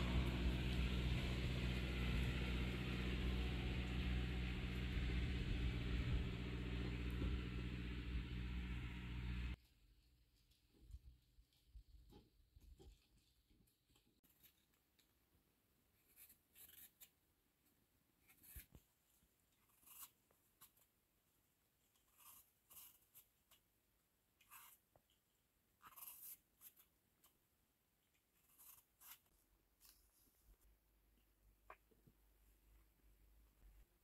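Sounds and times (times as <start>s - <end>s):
vegetable peeler scraping apple: 19.6s - 20.8s, 25.8s - 26.9s.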